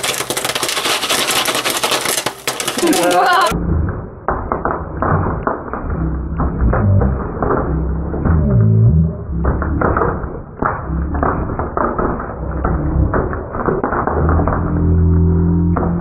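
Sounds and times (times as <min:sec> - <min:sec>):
pan shaken on stove grate: 0:00.0 - 0:03.5
popcorn kernels popping: 0:00.0 - 0:03.6, 0:09.2 - 0:16.0.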